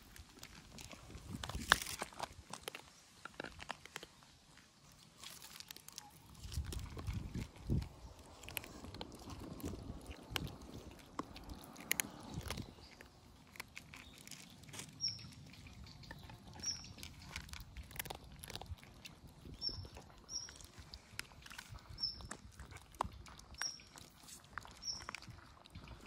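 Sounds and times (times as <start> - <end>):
cat chewing food: 0.0 - 26.0
cat lapping milk: 6.2 - 13.8, 14.4 - 26.0.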